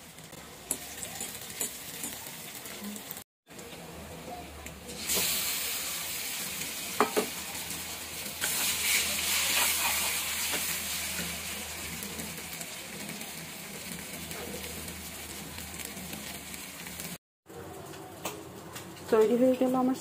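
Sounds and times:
paste sizzling in hot oil: 0.0s - 3.2s, 4.9s - 17.2s.

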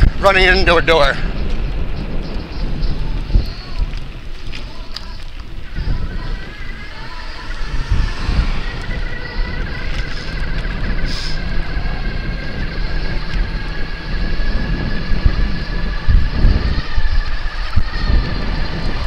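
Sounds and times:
wind buffeting microphone: 0.0s - 19.0s
low road rumble: 1.1s - 19.0s
thin high whine: 5.6s - 11.7s.

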